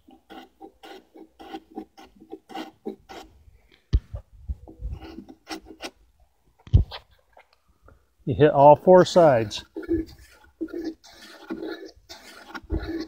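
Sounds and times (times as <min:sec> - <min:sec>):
hand tool scraping wood: 0:00.0 - 0:03.4, 0:04.6 - 0:06.0, 0:09.0 - 0:13.0.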